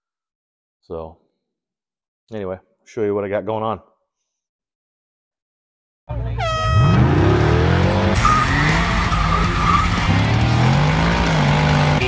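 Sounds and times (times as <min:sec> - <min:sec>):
loud falling horn blare: 0:06.4 - 0:10.4
car engine revving: 0:06.5 - 0:12.0.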